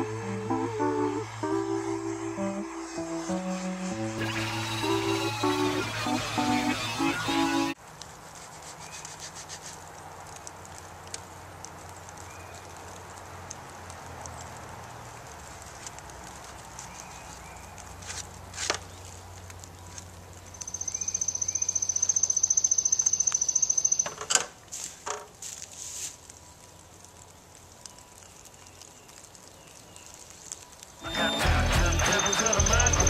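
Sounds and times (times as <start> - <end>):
faint bird chirps: 20.5 - 24.1
bird trilling: 20.6 - 24.1.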